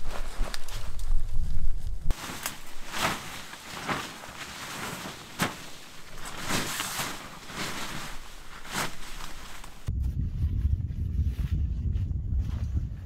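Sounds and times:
footsteps crunching snow: 0.0 - 9.9.

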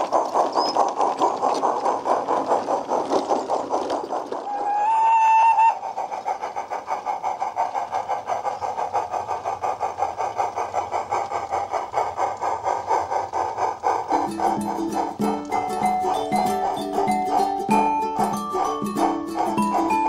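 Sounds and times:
rapid locomotive chuffs: 0.0 - 20.0
model train whistle: 4.5 - 5.8.

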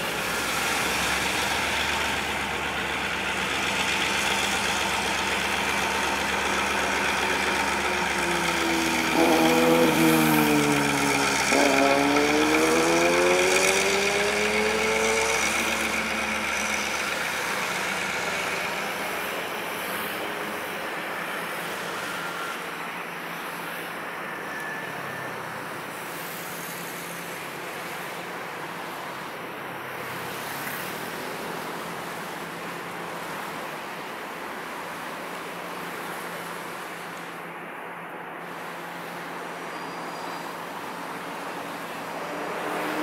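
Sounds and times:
vehicle rumble: 0.0 - 43.0.

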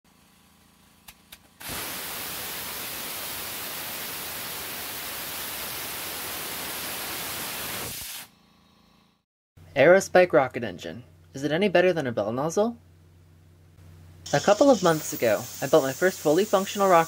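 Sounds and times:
rocket engine exhaust hissing: 1.6 - 8.3, 14.3 - 17.0.

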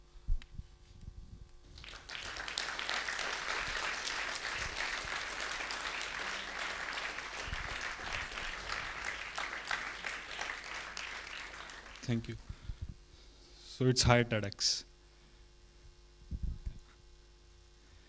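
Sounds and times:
audience applauding: 1.7 - 12.4.

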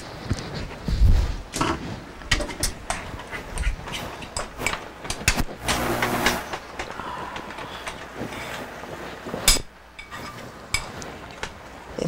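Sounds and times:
metal utensil scraping a pan: 9.4 - 11.6.

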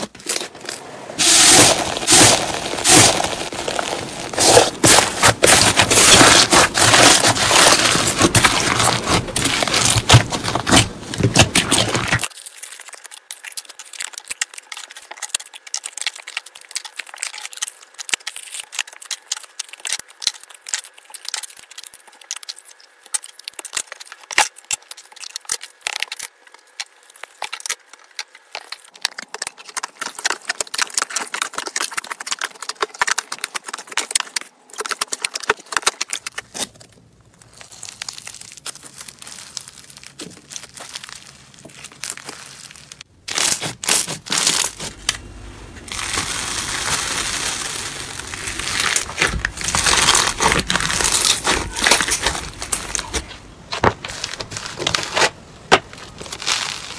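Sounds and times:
foam-bead slime crackling: 0.0 - 56.9
hands squishing slime: 1.2 - 26.2, 37.5 - 45.1, 45.8 - 56.9.

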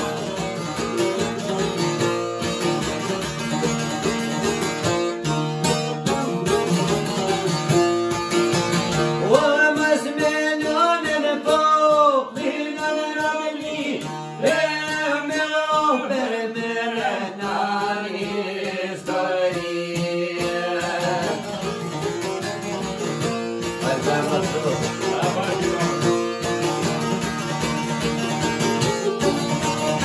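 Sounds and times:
man singing: 0.0 - 1.6, 6.0 - 8.1, 9.2 - 22.8, 23.6 - 26.5
plucked lute: 0.0 - 30.0
plucked mandolin: 0.0 - 30.0.

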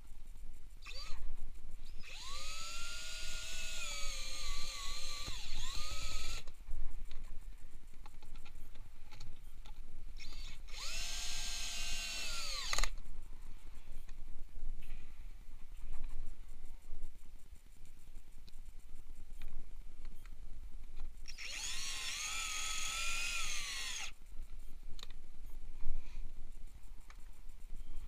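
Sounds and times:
cordless drill whining: 0.8 - 1.2, 1.9 - 6.5, 10.2 - 12.9, 21.3 - 24.2.

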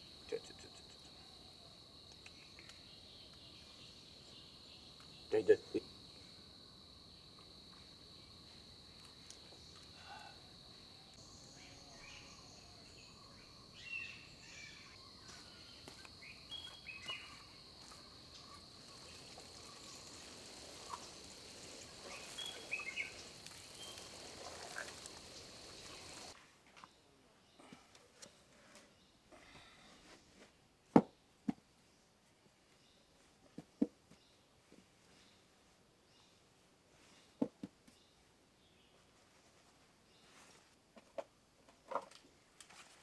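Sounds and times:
high-pitched insect drone: 15.3 - 26.3.

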